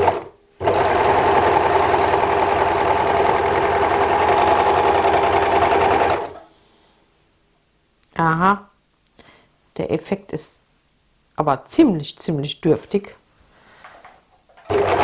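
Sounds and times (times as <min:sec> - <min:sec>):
overlock sewing machine running: 0:00.0 - 0:06.4, 0:14.7 - 0:15.0.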